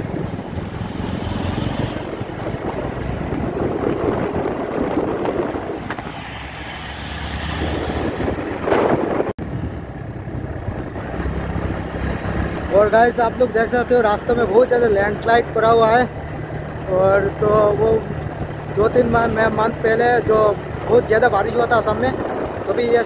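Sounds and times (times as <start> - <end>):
motorcycle engine running: 0.0 - 23.0
wind rushing over microphone: 0.0 - 23.0.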